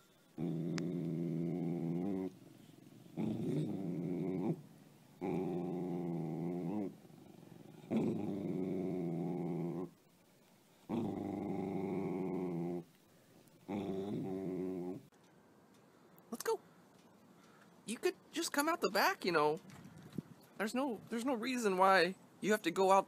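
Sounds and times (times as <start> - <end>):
dog growling low: 0.3 - 10.0, 10.9 - 12.9, 13.6 - 15.1.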